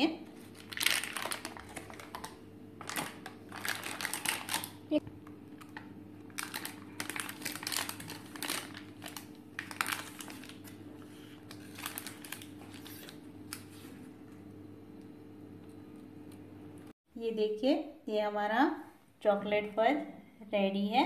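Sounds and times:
paper crinkling and rustling: 0.4s - 4.8s, 5.6s - 14.1s.

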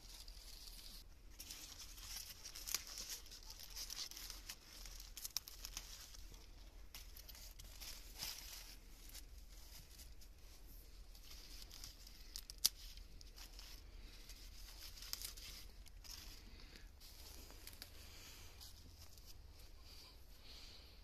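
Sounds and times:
plastic bags crinkling: 0.0s - 19.5s
lettuce leaves tearing: 0.1s - 10.1s, 11.2s - 16.4s.

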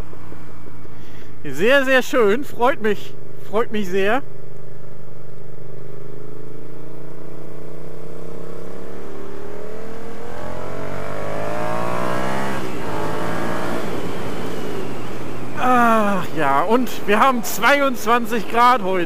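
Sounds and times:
motorcycle engine accelerating: 4.7s - 19.0s.

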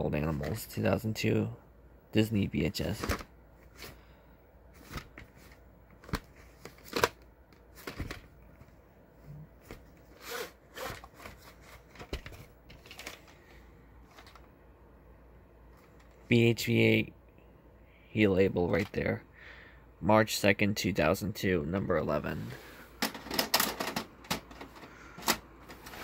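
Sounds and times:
paper and card rustling: 2.9s - 4.1s, 4.7s - 8.7s, 9.6s - 14.5s.

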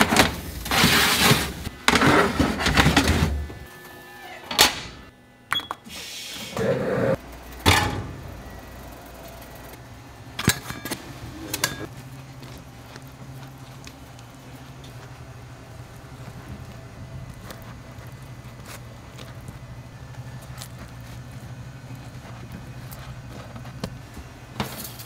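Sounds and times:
kitchen clattering: 10.4s - 11.9s.

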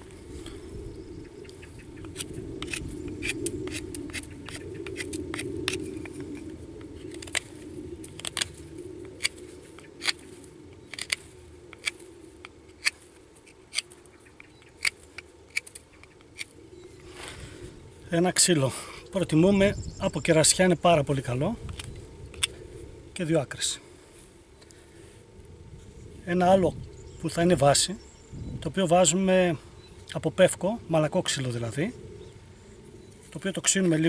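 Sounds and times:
knife scraping wood: 2.1s - 6.2s, 8.1s - 16.5s.

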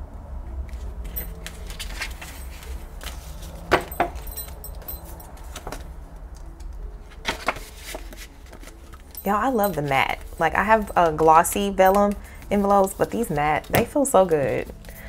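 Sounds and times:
paper rustling and flicking: 0.8s - 3.8s, 7.1s - 9.2s.

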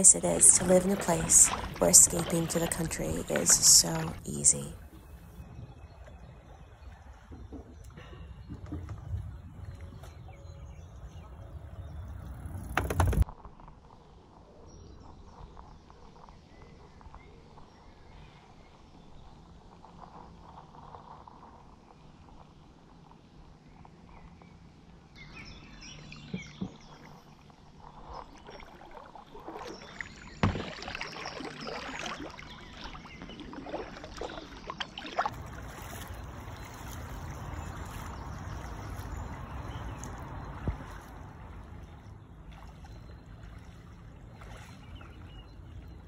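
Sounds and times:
paddle splashing and dripping: 0.0s - 13.3s, 26.2s - 46.0s
low rumble: 7.8s - 13.2s
paddle knocking on hull: 12.5s - 13.2s, 30.4s - 31.1s, 40.1s - 42.0s.

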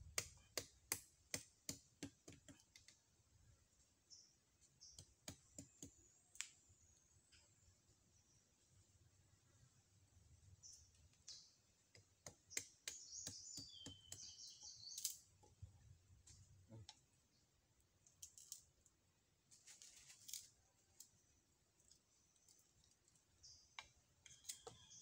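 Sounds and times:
knife cutting and scraping plant stalks: 12.2s - 15.3s, 19.5s - 21.2s, 23.8s - 25.0s.

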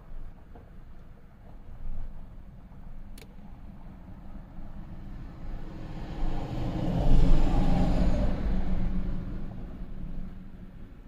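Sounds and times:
vehicle passing outside: 4.8s - 10.8s.

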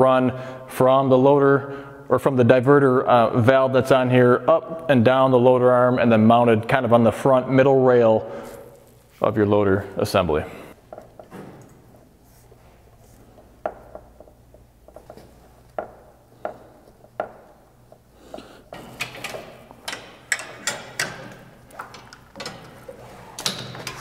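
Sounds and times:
hydraulic hose fittings clicking and knocking: 10.8s - 12.0s, 13.4s - 24.0s.

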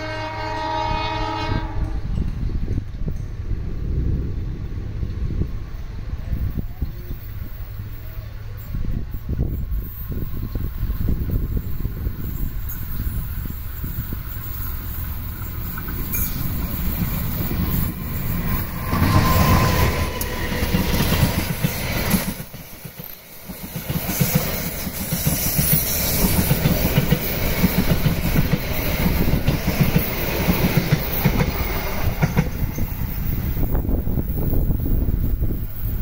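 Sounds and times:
locomotive passing at speed: 0.0s - 36.0s
train wheels clattering over rail joints: 9.5s - 36.0s.

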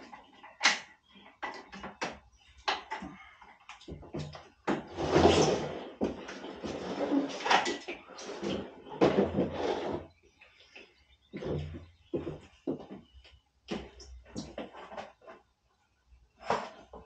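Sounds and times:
scraping rustle: 4.9s - 10.2s.

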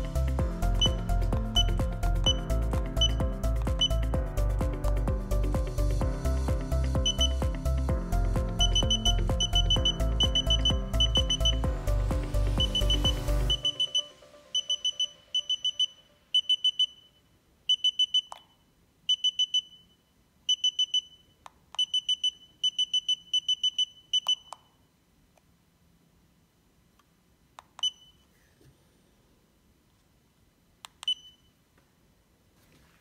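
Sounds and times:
background music with a beat: 0.0s - 15.8s
high electronic beeps: 0.7s - 4.2s, 7.0s - 7.5s, 8.6s - 11.7s, 12.6s - 18.4s.

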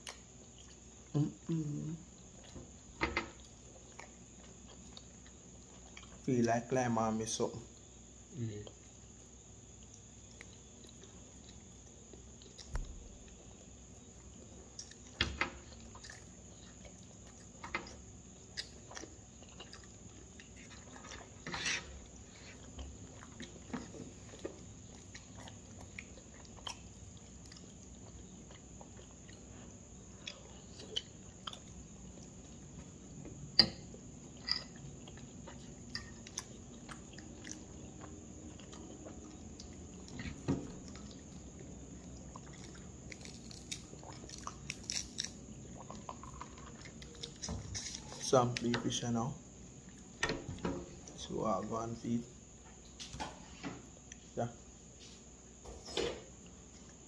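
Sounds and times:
person chewing: 0.0s - 1.3s, 2.1s - 6.2s, 8.6s - 33.2s, 34.0s - 48.3s.

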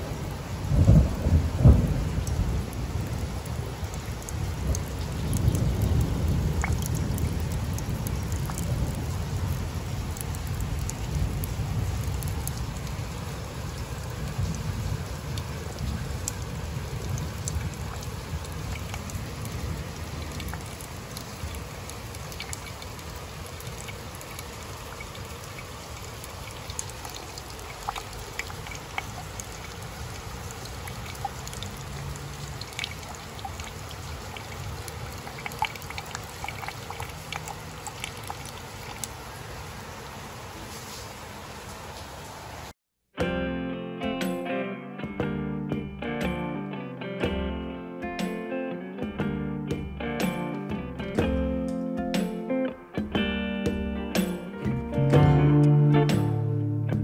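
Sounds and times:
rain falling on leaves: 0.0s - 42.8s
water drops ticking: 3.8s - 9.0s, 17.0s - 39.2s.

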